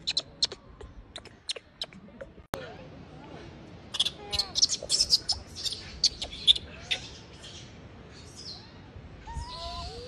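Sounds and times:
monkey infant squealing: 4.0s - 6.6s.

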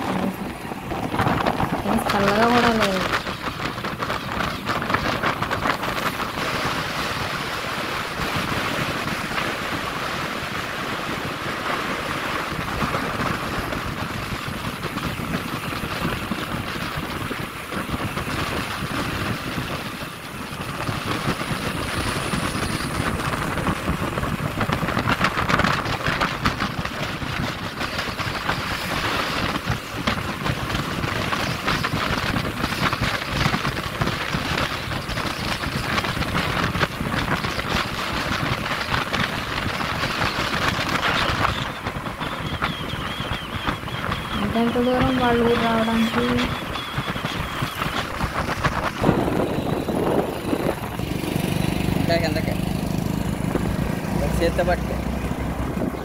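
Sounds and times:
motorbike engine: 0.0s - 56.0s
wind rushing over microphone: 0.0s - 56.0s.

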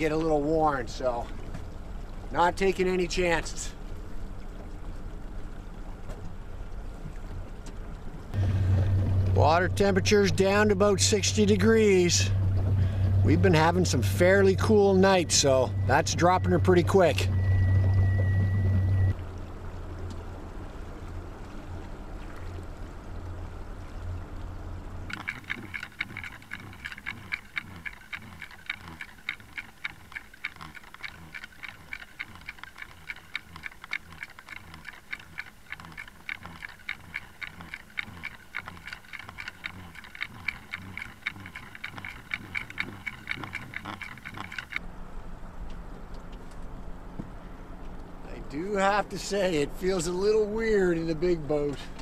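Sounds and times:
underwater regular ticking: 0.0s - 20.7s, 21.8s - 44.9s, 47.8s - 52.0s
outboard motor humming: 0.0s - 52.0s
steady high whine: 8.4s - 19.2s.

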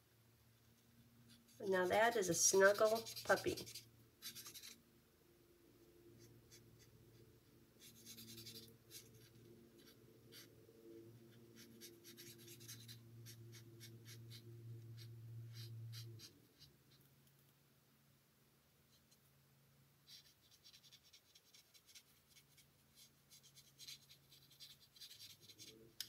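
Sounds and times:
low steady hum: 0.0s - 26.0s
marker scratching on cardstock: 1.3s - 4.8s, 7.8s - 10.6s, 11.2s - 17.0s, 20.1s - 26.0s.

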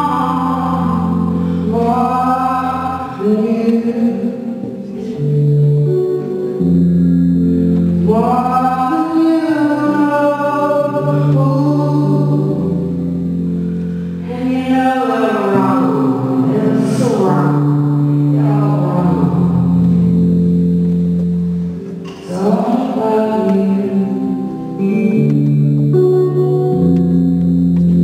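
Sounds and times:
woman singing: 0.0s - 5.2s, 8.1s - 12.8s, 14.2s - 19.7s, 22.2s - 25.6s
sustained low chords: 0.0s - 28.0s.

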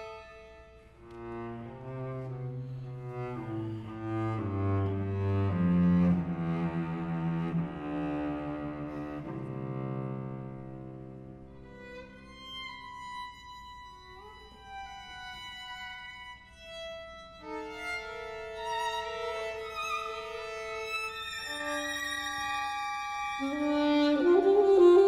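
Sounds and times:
violins and viola playing held notes: 17.4s - 25.0s.

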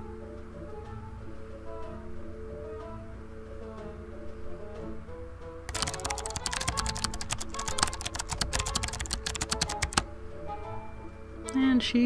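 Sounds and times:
background music: 0.0s - 12.0s
laptop keyboard typing: 5.7s - 10.1s.

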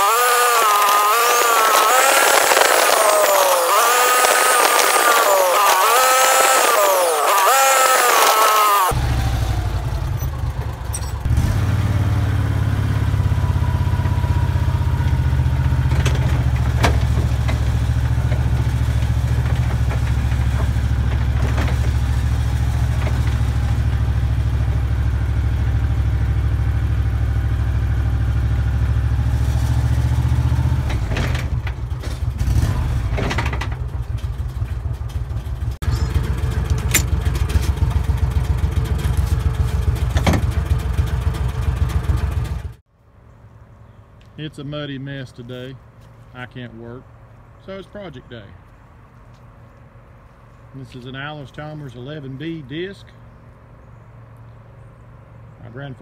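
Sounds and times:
vehicle engine running: 0.0s - 56.0s
load knocking and rattling: 36.6s - 37.8s.

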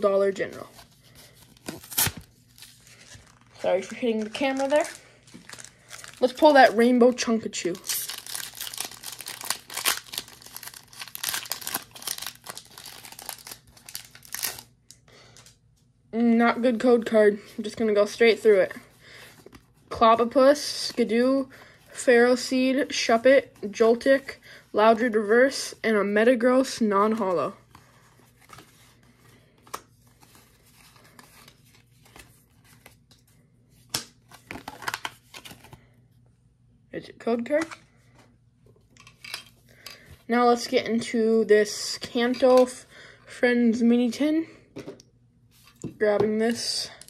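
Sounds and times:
cards rustling: 0.2s - 15.6s
foil wrapper crinkling: 1.5s - 6.8s, 7.6s - 14.7s.

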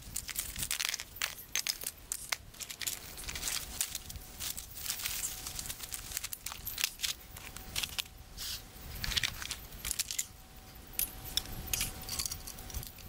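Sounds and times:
nylon sack rustling and crinkling: 0.0s - 8.1s.

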